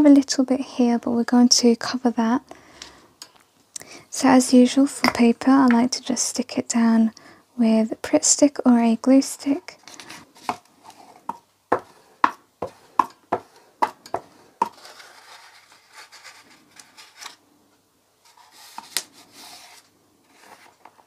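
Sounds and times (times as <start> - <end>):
paper rustling: 9.8 - 11.2, 14.6 - 17.4, 18.2 - 21.0.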